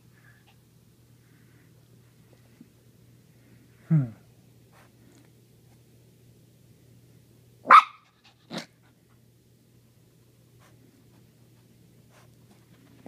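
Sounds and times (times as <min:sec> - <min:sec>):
puppy barking: 0:07.6 - 0:08.7.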